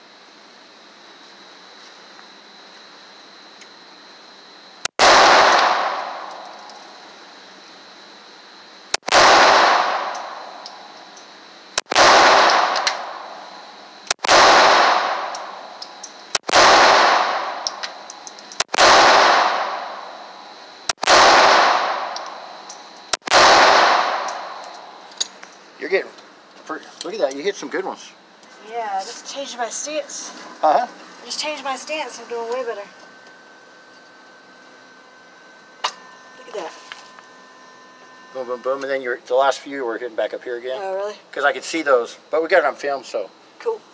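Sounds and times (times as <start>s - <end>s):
handgun shots echoing: 5.0s - 6.5s, 11.9s - 13.1s.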